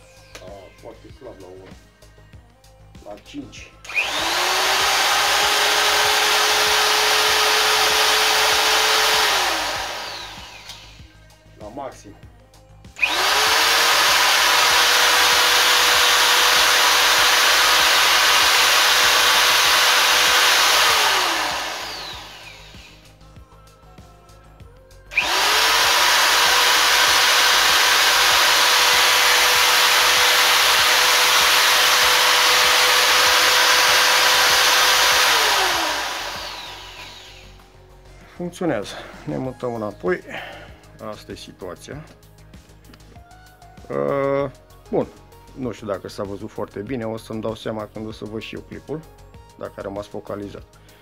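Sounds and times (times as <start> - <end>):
paddle mixer motor whine: 3.9 - 11.1, 13.0 - 23.0, 25.1 - 37.6.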